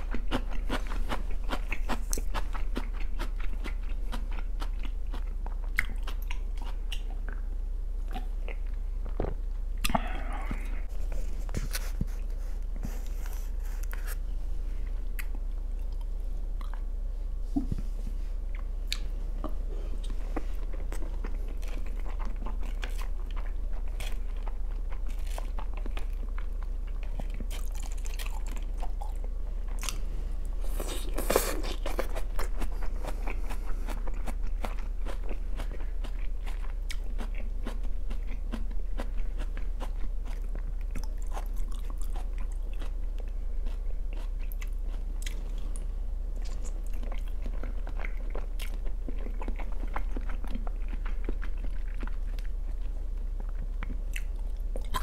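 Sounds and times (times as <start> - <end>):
food crunching: 0.0 - 7.4, 18.5 - 55.0
person chewing and biting food: 0.0 - 14.2, 18.5 - 55.0.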